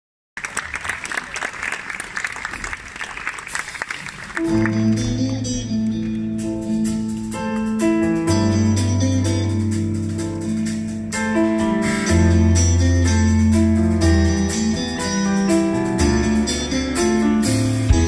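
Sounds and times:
audience applauding: 0:00.4 - 0:04.9
live band playing: 0:03.4 - 0:18.0.

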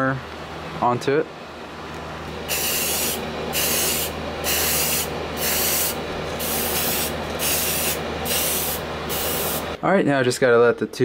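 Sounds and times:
aerosol spray can hissing: 0:02.5 - 0:09.7.

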